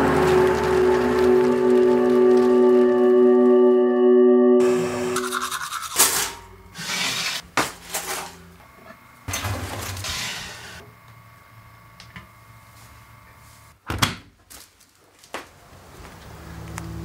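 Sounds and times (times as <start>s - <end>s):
held musical chord: 0.0s - 5.6s.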